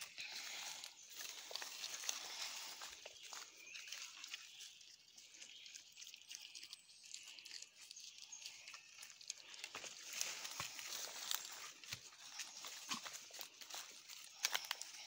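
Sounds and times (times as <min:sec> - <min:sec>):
rustling through undergrowth: 0:00.0 - 0:15.0
footfalls on dry leaves: 0:09.6 - 0:15.0.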